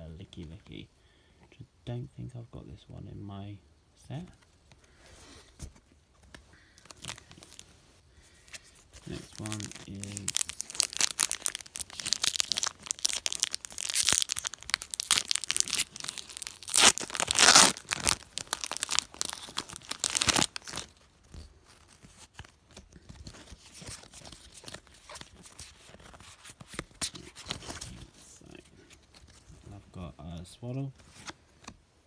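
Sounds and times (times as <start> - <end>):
foil wrapper tearing and crinkling: 9.1 - 21.0.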